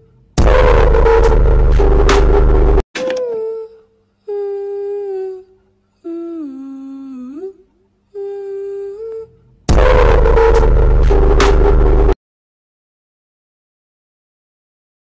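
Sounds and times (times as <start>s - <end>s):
loud harsh blast: 0.4s - 2.8s, 9.7s - 12.2s
person humming a slow tune: 3.0s - 9.5s.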